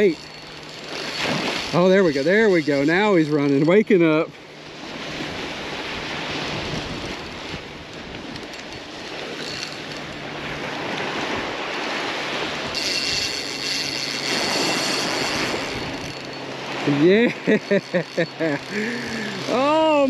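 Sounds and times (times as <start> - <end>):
wind on microphone: 4.7 - 17.4
surf washing onto beach: 14.3 - 20.0.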